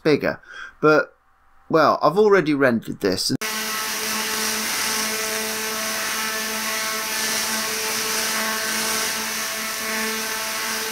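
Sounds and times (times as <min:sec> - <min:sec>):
electric buzzing hum with hiss: 0:03.4 - 0:10.9.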